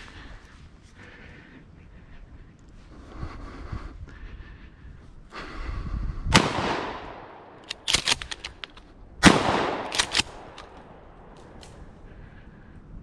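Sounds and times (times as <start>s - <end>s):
shotgun blasts: 6.3s - 8.2s, 9.2s - 11.1s
sharp clicks: 7.6s - 8.9s, 9.6s - 11.9s.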